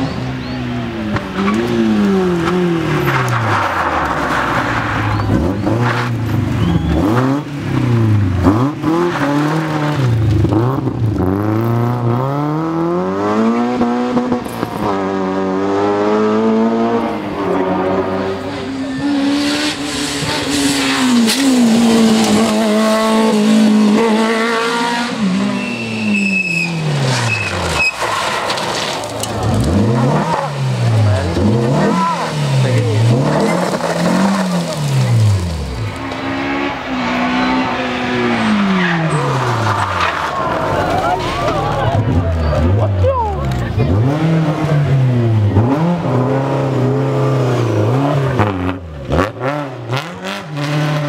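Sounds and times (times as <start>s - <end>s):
rally car engines revving: 0.0s - 51.0s
tyre squeal: 3.0s - 7.3s, 25.4s - 29.0s.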